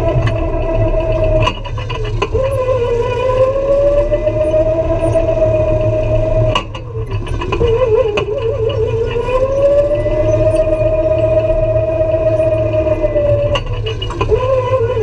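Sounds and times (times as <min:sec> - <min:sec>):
go-kart engine whine: 0:00.0 - 0:15.0.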